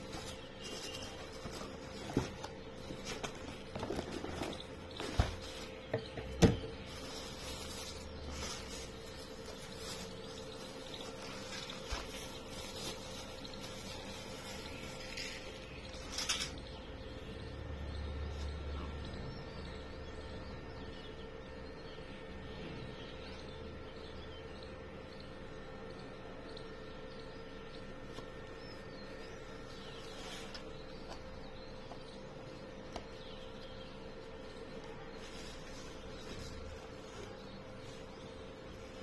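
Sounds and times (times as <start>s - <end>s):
packaging rustling: 0.0s - 16.6s
faint steady hum: 0.0s - 39.0s.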